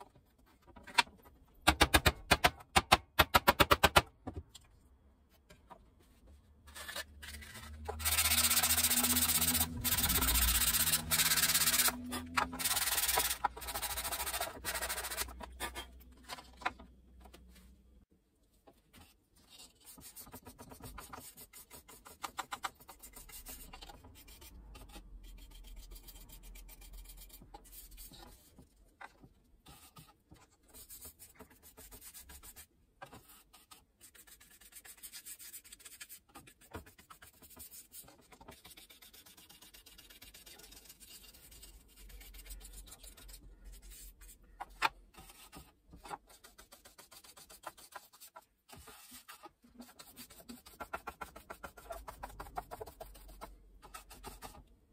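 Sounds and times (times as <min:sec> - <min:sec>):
paintbrush scratching on wood: 0:08.0 - 0:12.0.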